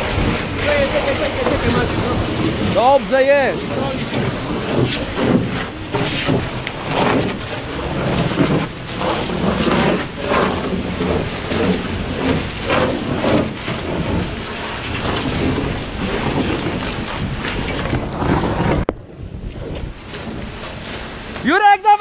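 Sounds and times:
rough rumbling of building fire: 0.0 - 22.0.

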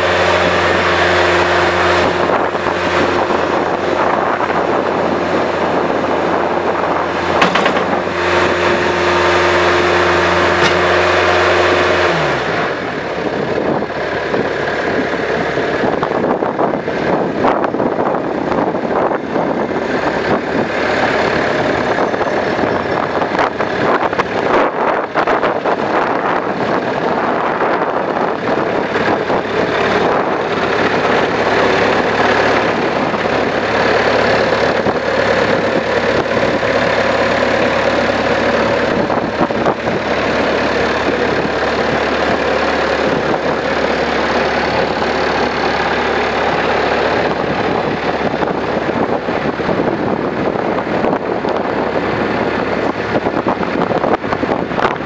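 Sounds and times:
diesel engine running: 0.0 - 55.0
knocks and clatters: 7.4 - 8.1, 10.6 - 11.1.

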